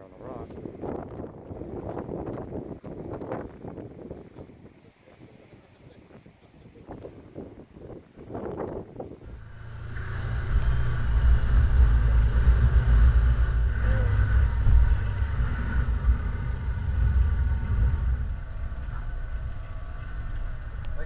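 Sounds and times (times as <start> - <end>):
utility vehicle engine rumbling: 9.2 - 21.0.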